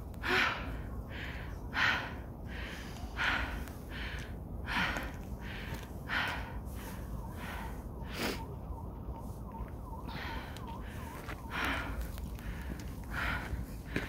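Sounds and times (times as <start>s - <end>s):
person breathing hard: 0.1s - 8.6s, 10.1s - 14.0s.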